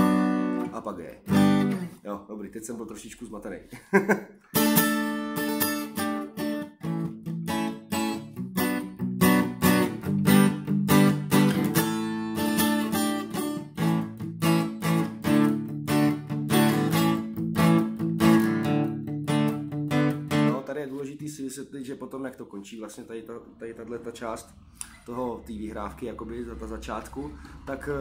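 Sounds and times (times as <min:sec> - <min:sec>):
acoustic guitar strumming riff: 0:00.0 - 0:02.0, 0:04.5 - 0:20.6
person talking: 0:20.5 - 0:28.0.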